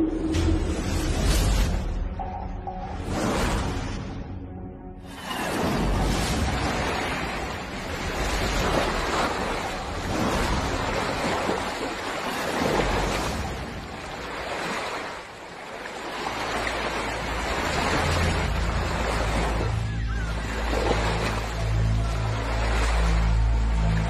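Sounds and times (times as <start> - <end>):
water splashing and churning: 0.0 - 24.0.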